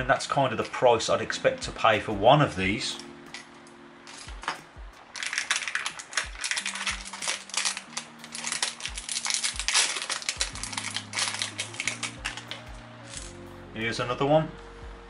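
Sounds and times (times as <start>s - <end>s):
soft background music with beat: 0.0s - 15.0s
plastic wrapping crinkling: 2.9s - 13.4s.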